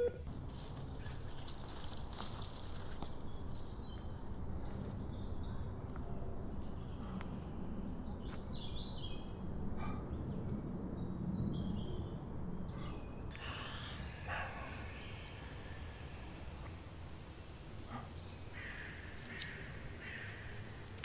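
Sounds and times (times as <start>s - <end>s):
birds chirping: 0.8s - 21.0s
low rumble: 9.2s - 21.0s.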